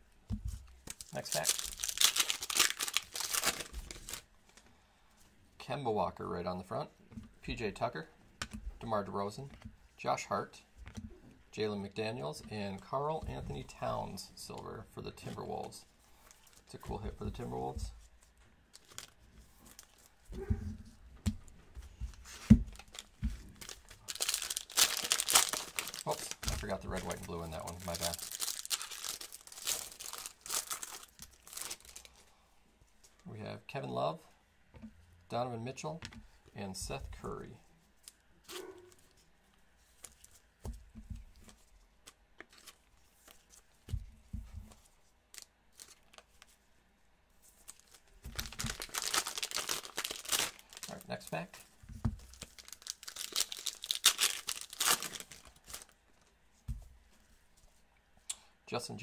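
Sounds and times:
cellophane pack crinkling and tearing: 0:00.7 - 0:04.3, 0:18.7 - 0:20.2, 0:22.1 - 0:32.2, 0:45.3 - 0:46.5, 0:47.6 - 0:51.6, 0:52.2 - 0:56.0.

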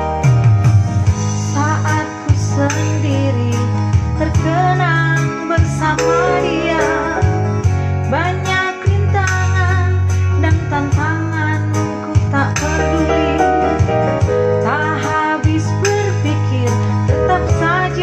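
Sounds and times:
electronic keyboard bass notes: 0:00.0 - 0:18.0
woman singing with vibrato: 0:01.6 - 0:13.6, 0:14.6 - 0:18.0.

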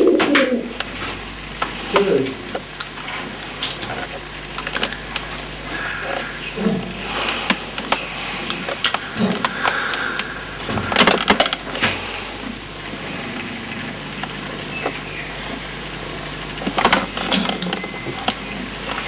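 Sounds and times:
pigeons cooing: 0:00.0 - 0:00.8, 0:04.9 - 0:11.1.

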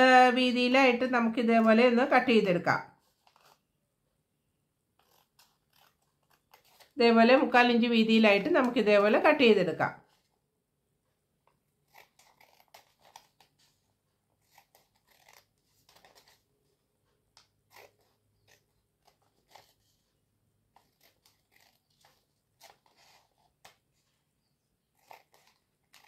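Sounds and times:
scissors snipping paper: 0:01.4 - 0:03.6, 0:04.9 - 0:09.5, 0:11.4 - 0:24.2, 0:24.9 - 0:26.0.

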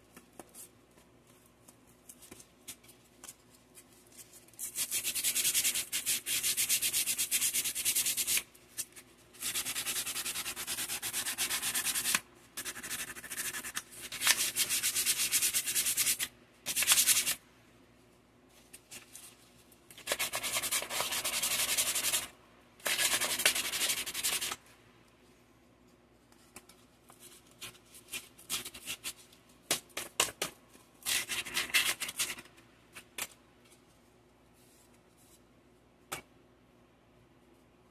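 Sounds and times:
hand sanding with sandpaper: 0:04.6 - 0:08.4, 0:09.4 - 0:17.4, 0:20.0 - 0:22.3, 0:22.9 - 0:24.6.

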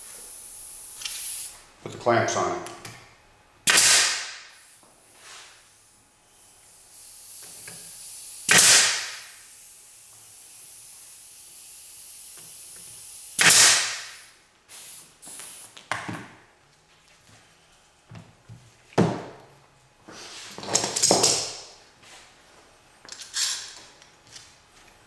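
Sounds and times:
pin nailer pop and hiss: 0:00.9 - 0:01.5, 0:03.6 - 0:04.9, 0:06.9 - 0:16.1
faint steady air hiss: 0:04.4 - 0:16.6.

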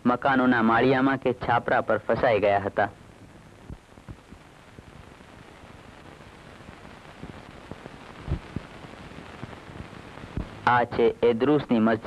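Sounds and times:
recording hiss and hum: 0:00.0 - 0:12.0
faint clicks and pops: 0:03.1 - 0:10.7.

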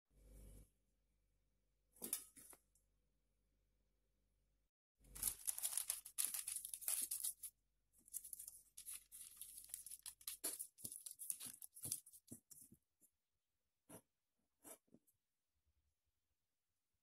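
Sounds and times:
baking paper crinkling: 0:05.1 - 0:12.7.

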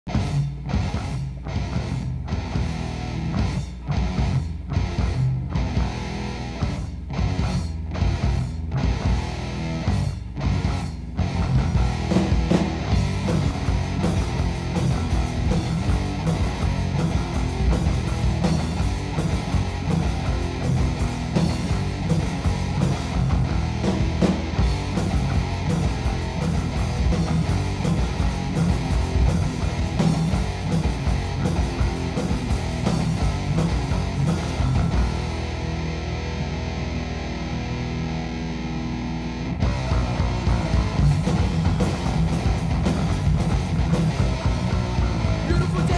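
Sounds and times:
bass guitar: 0:00.0 - 0:45.9
fast drums: 0:00.1 - 0:35.7, 0:39.6 - 0:45.9
distorted electric guitar riffing: 0:00.1 - 0:45.9.

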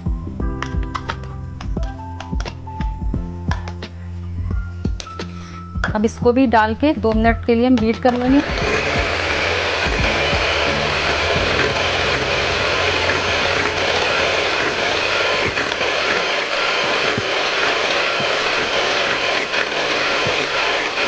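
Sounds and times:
electric hand mixer whipping: 0:08.0 - 0:21.0.

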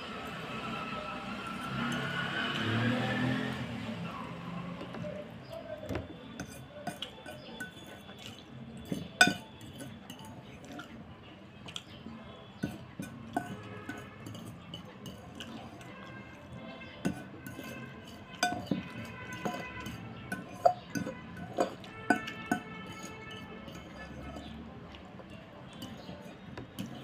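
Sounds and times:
fork clinking against ceramic bowl: 0:06.4 - 0:11.0, 0:12.6 - 0:24.6, 0:25.8 - 0:27.0.

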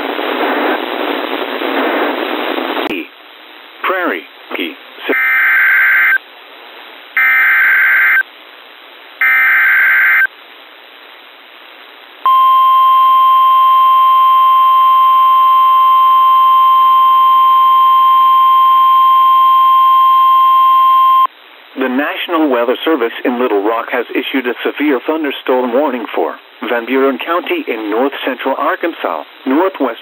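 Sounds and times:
steady weather radio alert tone: 0:03.8 - 0:06.2, 0:07.2 - 0:08.2, 0:09.2 - 0:10.3, 0:12.3 - 0:22.2
screechy digital data bursts: 0:09.2 - 0:10.3.

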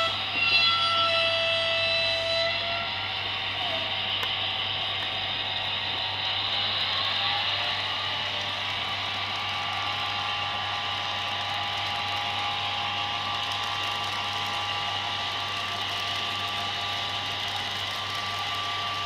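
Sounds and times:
faint high motor whine: 0:00.0 - 0:19.0
metal wheels whirring on rails: 0:00.0 - 0:19.0.

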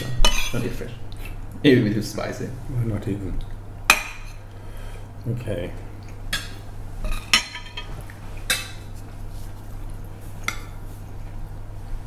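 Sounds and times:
steady low hum: 0:00.0 - 0:12.0
cutlery clinking on plates: 0:07.1 - 0:07.9.

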